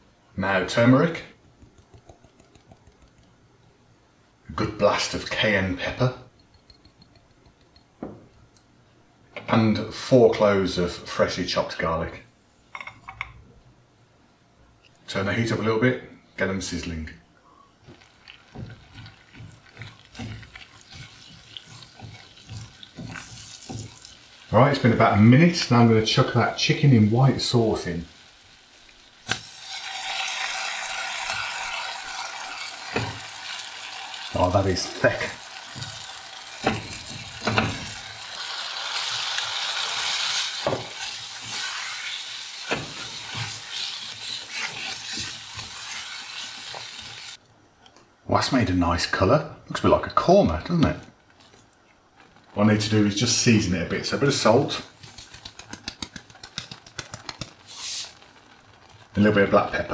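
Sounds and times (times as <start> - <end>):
garlic and spices frying: 17.8 - 47.4, 48.4 - 59.9
sauce sizzling in a saucepan: 17.8 - 47.4, 57.6 - 59.9
wooden spoon scraping a pan: 17.9 - 25.8, 39.9 - 47.4
wooden spoon knocking on pan: 18.5 - 24.2, 35.6 - 38.0, 40.6 - 41.0.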